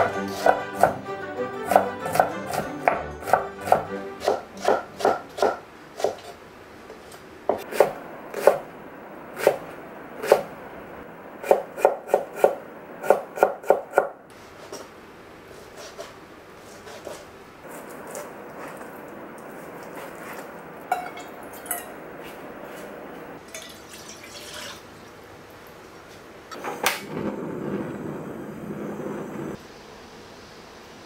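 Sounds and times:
knife chopping on wooden board: 1.7s - 6.3s.

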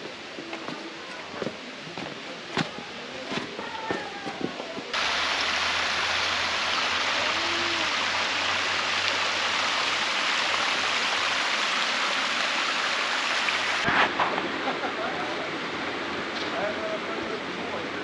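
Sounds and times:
waterfall rushing: 5.0s - 18.0s.

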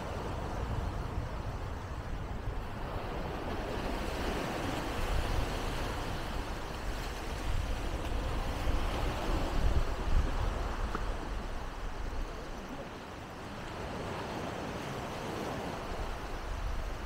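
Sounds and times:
waves washing on beach: 0.0s - 17.0s
wind rumbling on microphone: 0.0s - 17.0s.

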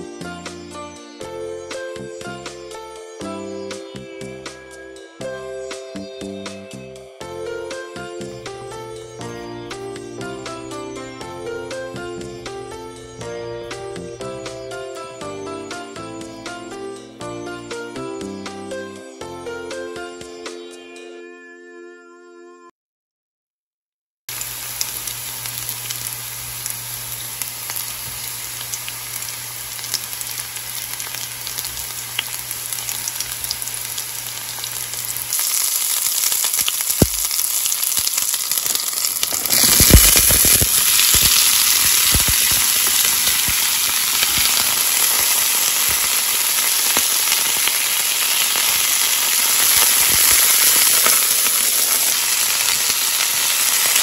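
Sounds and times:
vegetables sizzling in oil: 24.3s - 54.0s.

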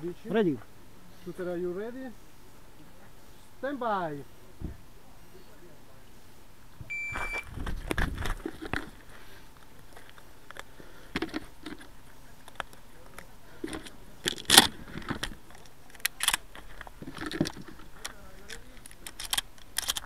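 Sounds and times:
shotgun shells clicking and rattling: 7.9s - 20.0s.

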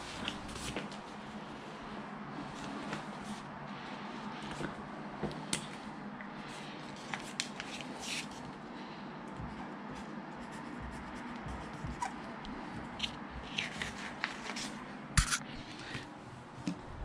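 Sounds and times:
low steady hum: 0.0s - 17.0s
marker scratching on paper: 9.4s - 14.6s.

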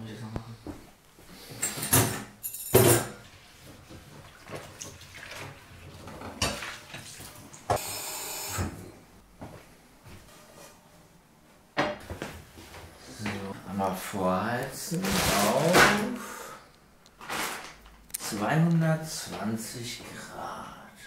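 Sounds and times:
crockery clattering in metal sink: 1.6s - 3.2s
tap water running: 3.7s - 8.7s.

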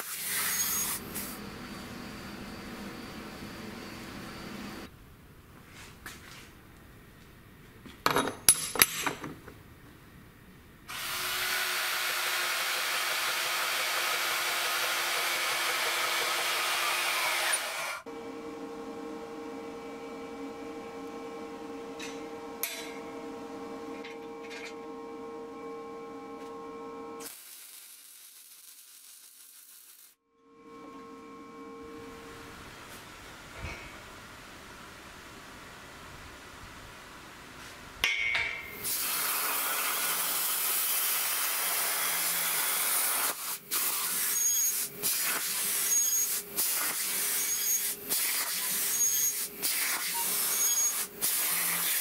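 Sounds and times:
power tool cutting: 0.0s - 4.5s, 10.9s - 18.1s, 38.8s - 52.0s.

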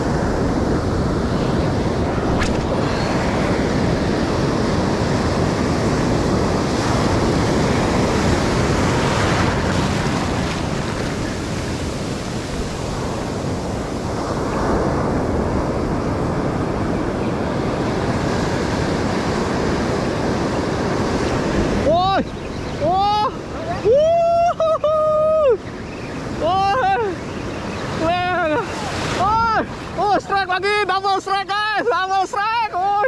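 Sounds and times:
wind buffeting microphone: 0.0s - 30.6s
ocean surf breaking: 0.0s - 33.0s.

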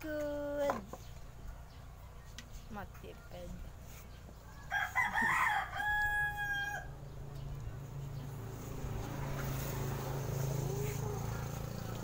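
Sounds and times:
rooster crowing: 4.5s - 7.0s.

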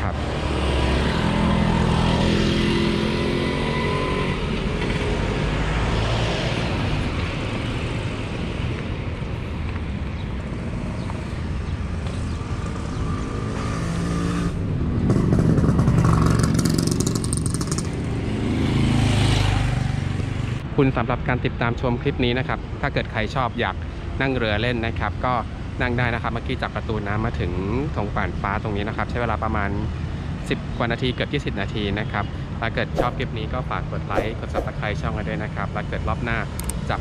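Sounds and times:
vehicle passing loudly: 0.0s - 7.2s, 32.9s - 33.5s, 34.1s - 35.1s
car and motorcycle engines: 0.0s - 20.8s, 32.6s - 37.0s.

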